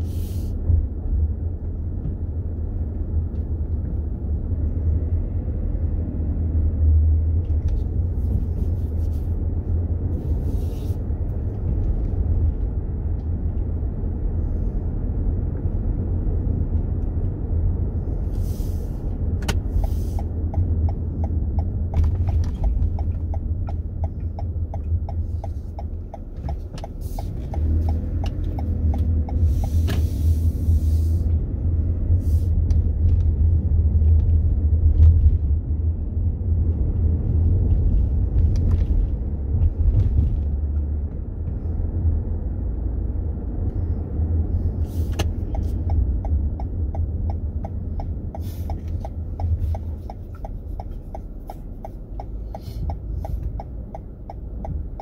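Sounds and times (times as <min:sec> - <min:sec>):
car engine and road rumble: 0:00.0 - 0:55.0
car turn signal ticking: 0:19.4 - 0:30.0, 0:45.1 - 0:55.0.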